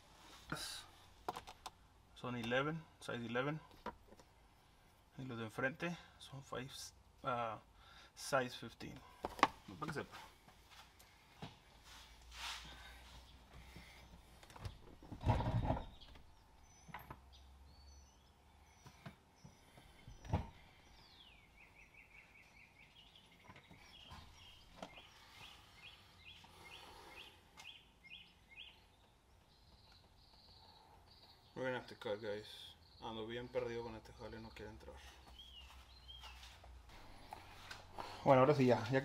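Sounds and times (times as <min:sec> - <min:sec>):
bird singing: 0:13.3 - 0:37.2.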